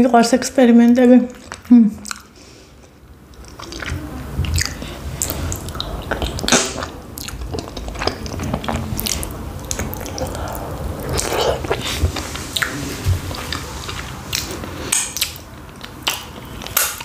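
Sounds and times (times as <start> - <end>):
person chewing with mouth clicks: 1.3 - 17.0
low rumble: 4.0 - 14.1.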